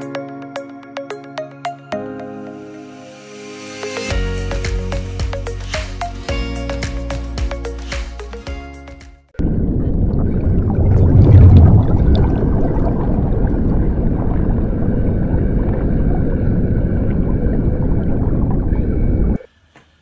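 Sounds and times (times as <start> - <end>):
underwater water rushing: 9.4 - 19.4
faint gurgling: 9.6 - 19.4.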